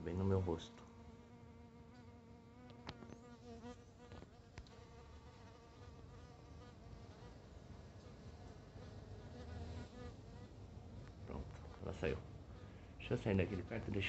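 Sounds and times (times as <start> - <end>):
bee wing hum: 0.1 - 7.4.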